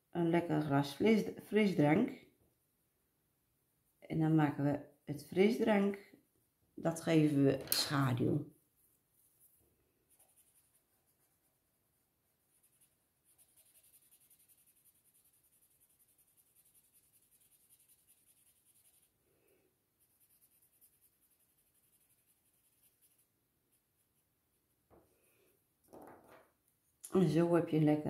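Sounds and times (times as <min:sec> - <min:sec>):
blending stump rubbing on paper: 0:12.5 - 0:19.1.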